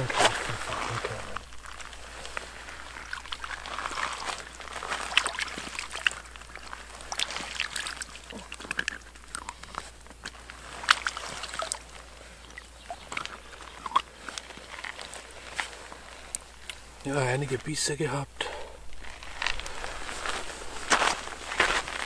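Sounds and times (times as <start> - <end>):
water sloshing and splashing: 0.0 - 17.0.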